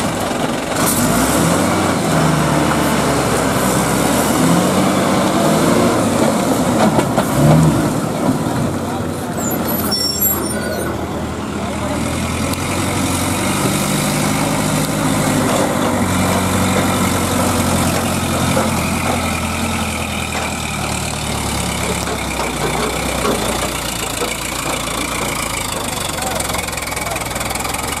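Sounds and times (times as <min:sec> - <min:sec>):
crane diesel engine running: 0:00.0 - 0:28.0.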